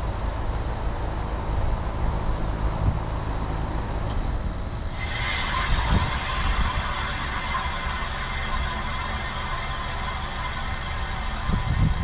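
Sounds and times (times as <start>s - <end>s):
heat pump humming: 0.0s - 12.0s
loud steady hiss: 4.8s - 12.0s.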